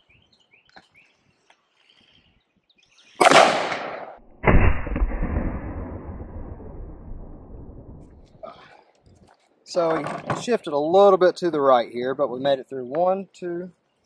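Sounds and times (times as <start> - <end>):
rifle shots: 3.2 - 7.4
gunshot echo: 3.2 - 8.2.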